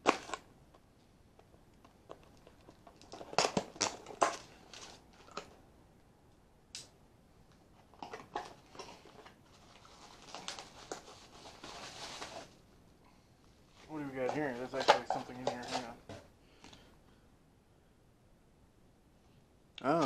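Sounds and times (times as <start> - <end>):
plastic packaging crinkling: 7.9 - 12.6.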